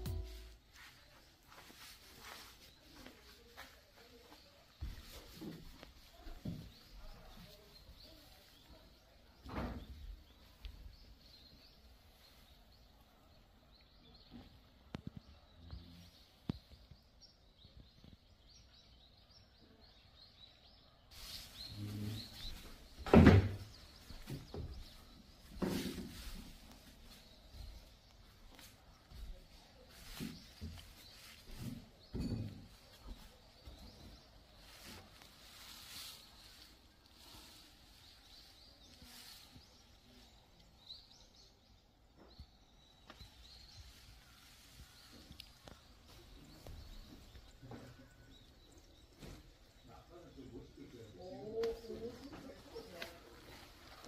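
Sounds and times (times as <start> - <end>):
soft knocks: 0.0 - 0.6
faint outdoor ambience: 0.0 - 54.0
small birds chirping: 0.0 - 54.0.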